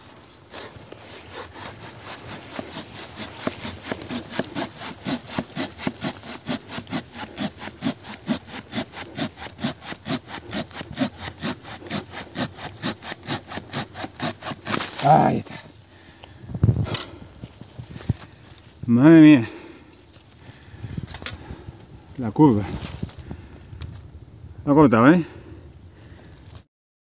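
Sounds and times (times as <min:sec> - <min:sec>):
hand saw cutting through log: 0:00.4 - 0:15.6.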